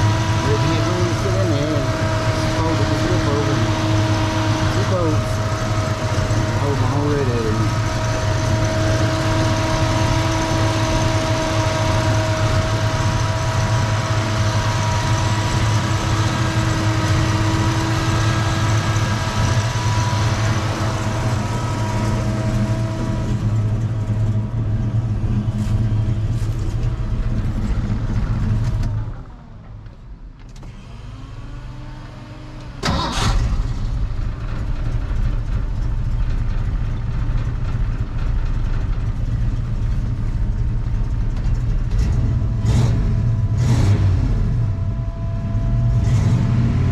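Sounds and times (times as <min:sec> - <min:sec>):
car engine idling: 0:00.0 - 0:46.9
steady whining tones: 0:00.0 - 0:46.9
engine cranking and starting: 0:32.8 - 0:36.4.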